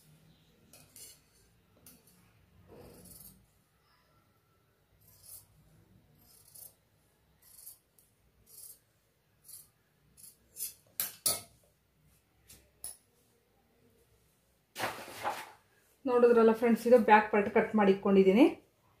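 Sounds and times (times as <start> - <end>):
scissors snipping fabric: 6.2 - 6.8.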